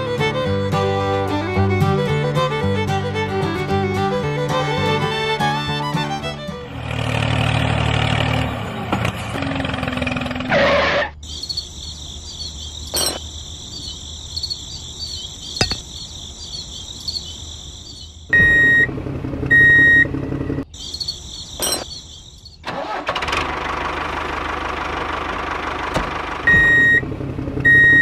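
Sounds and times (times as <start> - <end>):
loud low engine running: 2.5 - 11.0, 18.4 - 20.7, 22.6 - 28.0
insects chirring: 10.7 - 18.8, 20.6 - 23.0
short beeps: 18.4 - 18.9, 26.5 - 27.0, 27.7 - 28.0.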